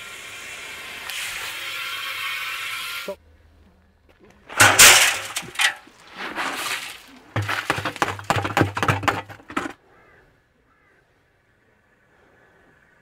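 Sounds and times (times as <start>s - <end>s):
gravel rattling in metal drum: 4.5s - 9.8s.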